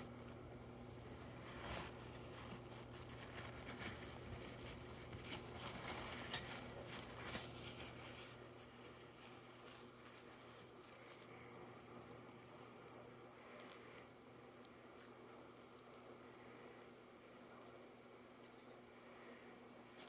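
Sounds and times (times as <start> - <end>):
rats rummaging clicks and rustles: 0.0 - 12.4
faint steady hum: 0.0 - 20.0.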